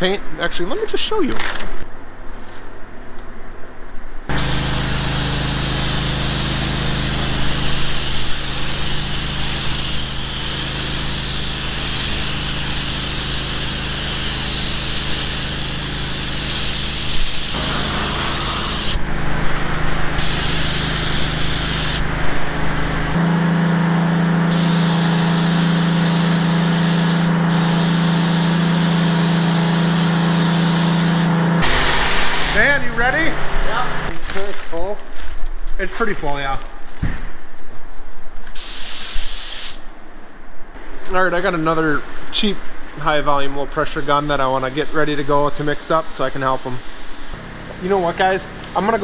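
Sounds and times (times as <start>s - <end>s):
paint spray gun hissing: 4.3s - 19.1s, 20.2s - 22.1s, 24.5s - 32.6s, 38.6s - 39.9s, 46.2s - 47.4s
low hum: 17.6s - 25.7s.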